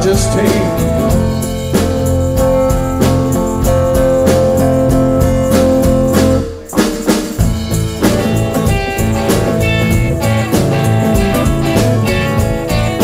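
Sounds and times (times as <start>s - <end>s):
live band playing instrumental: 0.0s - 13.0s.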